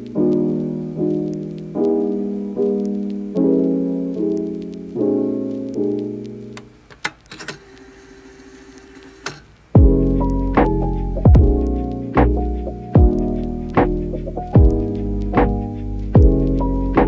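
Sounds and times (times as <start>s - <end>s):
soft piano chords: 0.0s - 6.8s, 9.8s - 17.0s
clicks: 4.1s - 8.0s, 8.6s - 9.7s.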